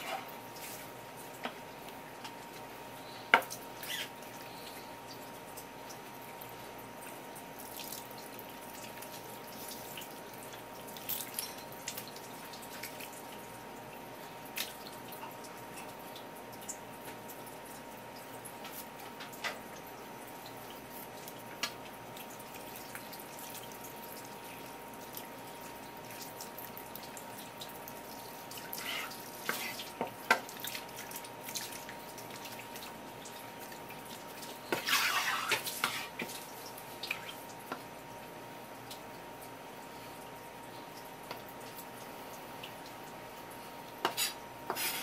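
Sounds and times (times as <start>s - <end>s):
tap water running and dripping: 0.0s - 45.0s
wet squishing and slapping: 20.8s - 37.6s.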